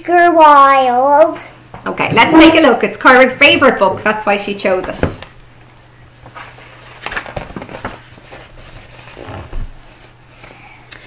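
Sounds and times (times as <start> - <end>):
book pages rustling: 6.2 - 10.6.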